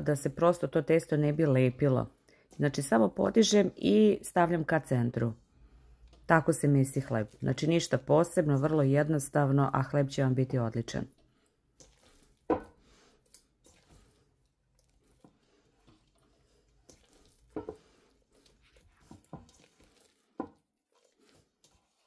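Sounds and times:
dough squelching and slapping: 0:05.6 - 0:22.0.

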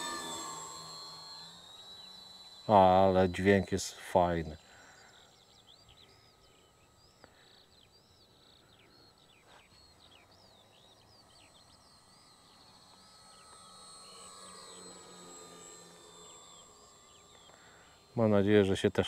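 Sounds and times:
electric motors humming: 0:00.0 - 0:19.0
songbirds chirping: 0:01.6 - 0:14.8.

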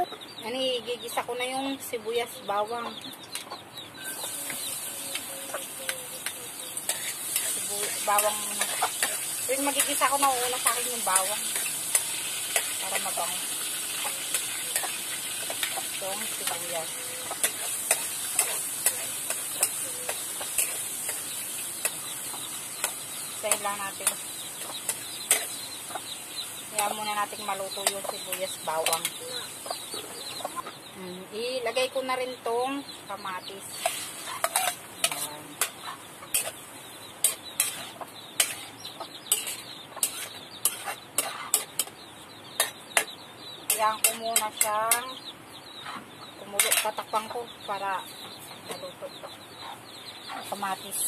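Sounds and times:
metal spatula scraping wok: 0:04.0 - 0:25.7, 0:33.7 - 0:36.6, 0:37.2 - 0:38.7, 0:39.3 - 0:41.9, 0:42.6 - 0:43.1, 0:46.6 - 0:47.0
food sizzling in oil: 0:04.0 - 0:30.0, 0:33.5 - 0:42.0, 0:42.6 - 0:43.1, 0:46.6 - 0:47.0
metal spatula clinking on pan: 0:33.8 - 0:36.5, 0:39.3 - 0:41.9, 0:46.6 - 0:47.0.

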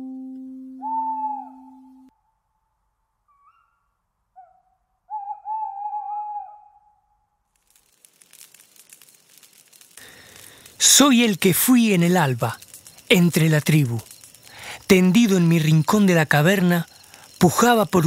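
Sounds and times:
plucked guitar note: 0:00.0 - 0:02.0
owl hooting: 0:00.8 - 0:02.0, 0:03.3 - 0:07.0.

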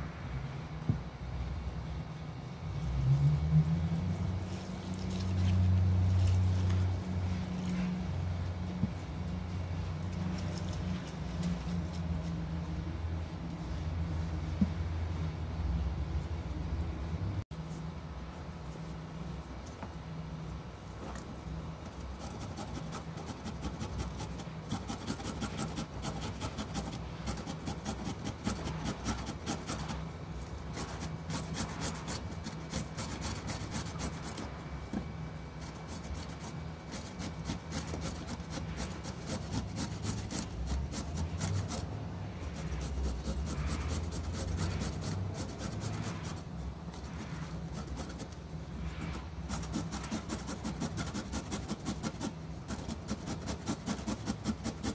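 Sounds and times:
carrot grated on metal grater: 0:22.0 - 0:30.1, 0:30.7 - 0:34.6, 0:35.6 - 0:46.4, 0:49.4 - 0:54.9.

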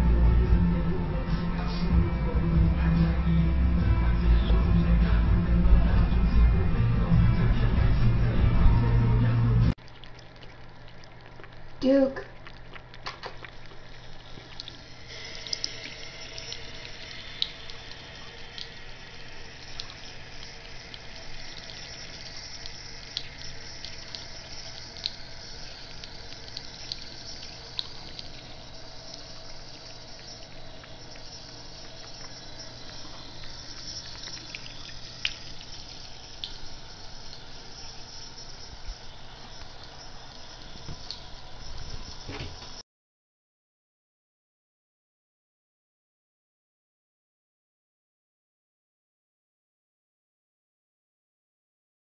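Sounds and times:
small drips and splashes: 0:09.8 - 0:42.8
tap water running into sink: 0:09.8 - 0:42.8.

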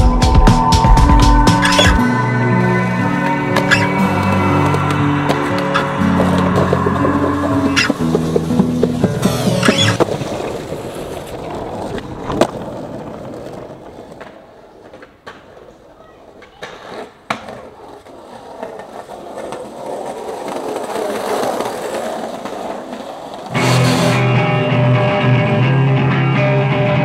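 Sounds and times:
skateboard wheels rolling on paving: 0:01.6 - 0:25.6
skateboard clacks: 0:03.1 - 0:24.3.

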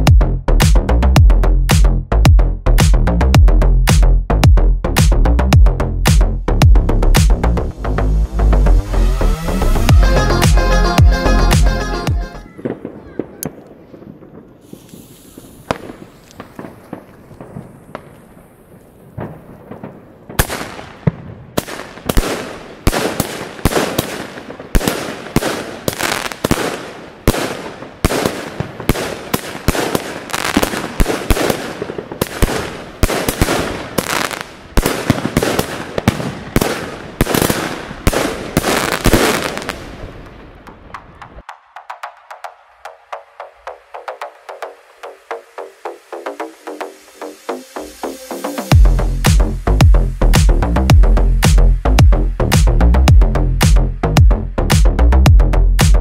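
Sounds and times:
firework bursting: 0:12.5 - 0:41.4.

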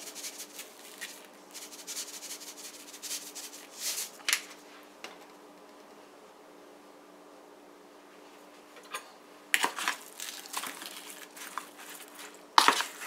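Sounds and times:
salt gritty rasps: 0:09.8 - 0:13.0.

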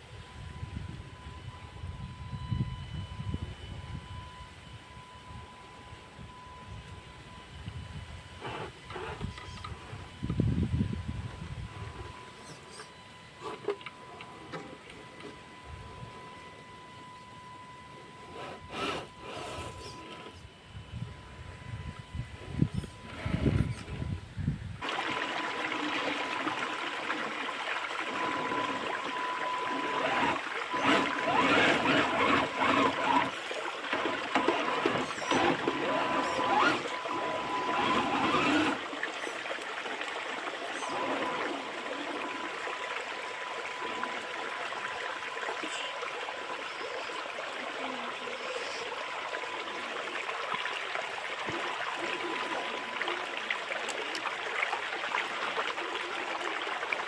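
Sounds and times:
faint electric motor whine: 0:00.0 - 0:57.0
stream water splashing over rocks: 0:24.8 - 0:57.0.

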